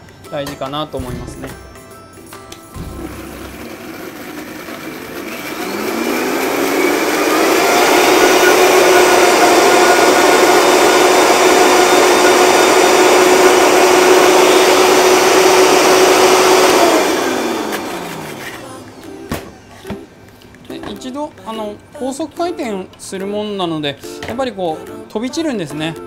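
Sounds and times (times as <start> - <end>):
blender motor whining: 2.9 - 19.6.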